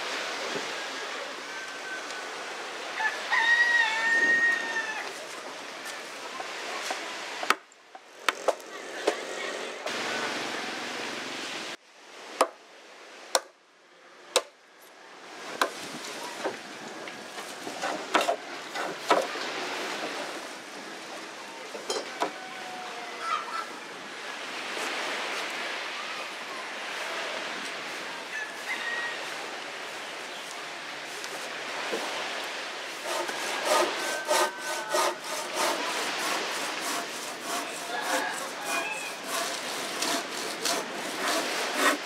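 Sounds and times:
outdoor background noise: 0.0s - 42.0s
rooster crowing: 3.0s - 5.2s, 28.3s - 29.5s, 33.0s - 35.8s, 37.5s - 39.5s.

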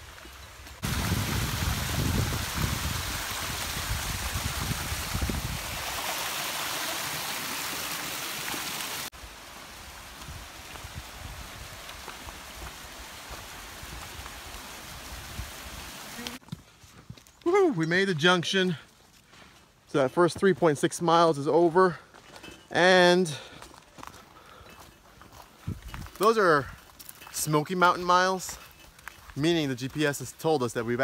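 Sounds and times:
mountain stream rushing: 0.0s - 16.4s
outdoor hiss: 0.0s - 16.4s.

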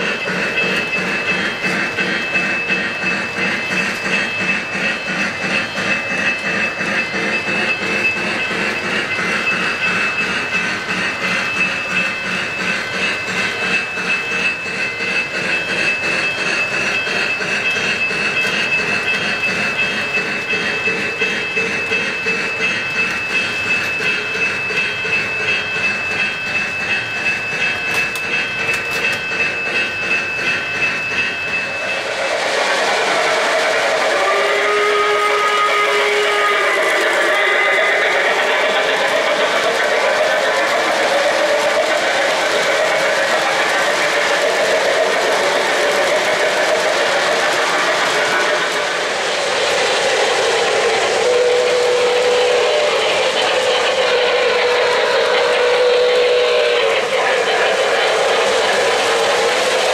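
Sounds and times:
model train wheels clicking: 0.0s - 59.9s.

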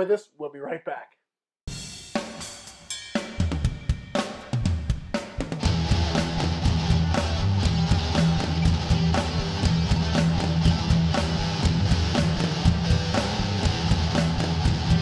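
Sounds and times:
steady drum beat: 1.7s - 15.0s
electric guitar: 5.6s - 15.0s.

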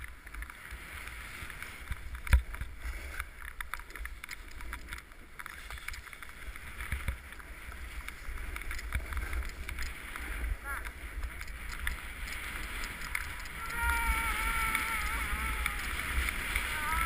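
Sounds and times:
snowboard scraping over snow: 0.1s - 17.0s
wind on microphone: 6.8s - 17.0s.

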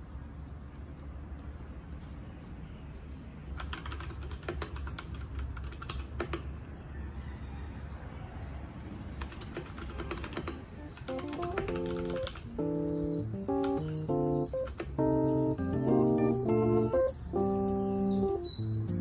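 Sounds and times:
mechanical keyboard key clicks: 9.2s - 12.6s.

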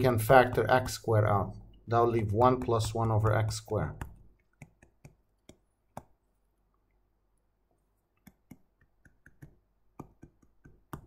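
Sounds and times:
stylus tapping on tablet screen: 2.2s - 6.3s, 8.1s - 11.0s.

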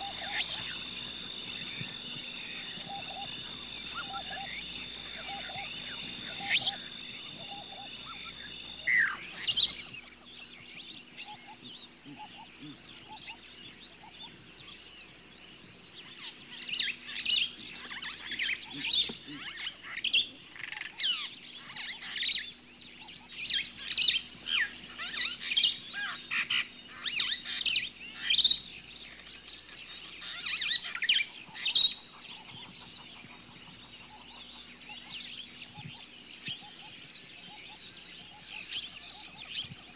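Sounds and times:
faint high trill: 0.0s - 9.5s
rapidly pulsing high buzz: 0.0s - 10.6s
birds chirping: 0.0s - 14.9s.

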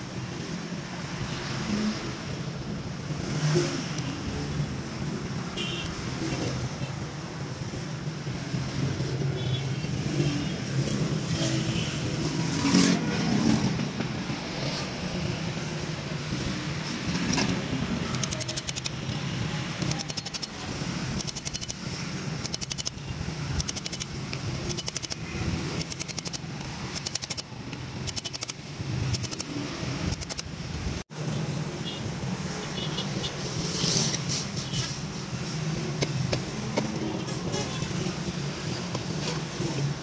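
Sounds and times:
rapid metallic clicking: 17.2s - 19.2s, 19.8s - 29.5s, 30.1s - 30.5s.

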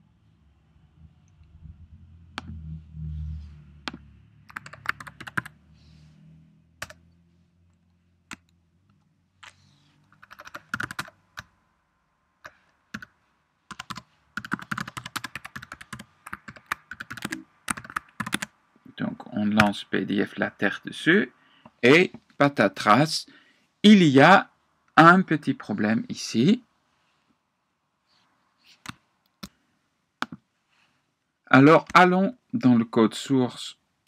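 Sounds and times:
typing on a keyboard: 3.9s - 5.5s, 10.2s - 11.5s, 13.7s - 18.5s.

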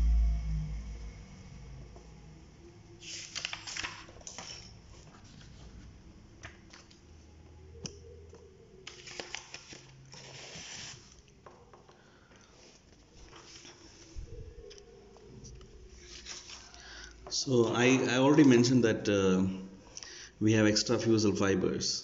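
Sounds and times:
paper rustling and sliding: 3.0s - 7.0s, 8.8s - 11.2s, 12.6s - 14.2s, 15.9s - 16.9s.

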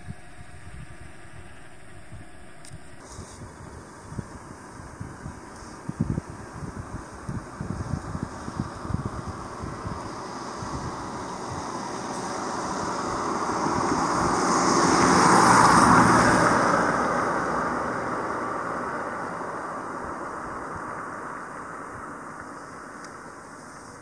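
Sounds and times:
vehicle passing by: 7.6s - 22.4s.

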